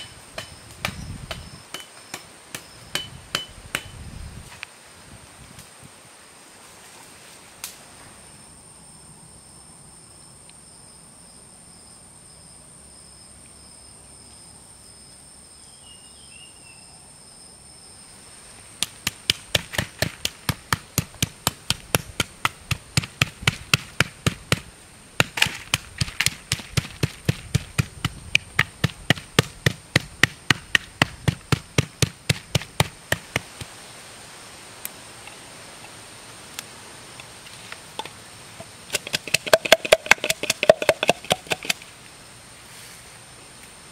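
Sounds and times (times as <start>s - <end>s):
high insect drone: 0.0s - 43.9s
knife chopping on wooden block: 39.0s - 41.8s.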